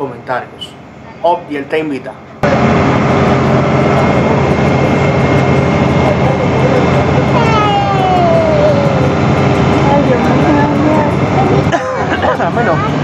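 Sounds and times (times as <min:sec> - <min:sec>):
ferry engine humming: 0:00.0 - 0:13.0
dense rushing noise: 0:02.3 - 0:13.0
long falling tone: 0:02.4 - 0:11.7.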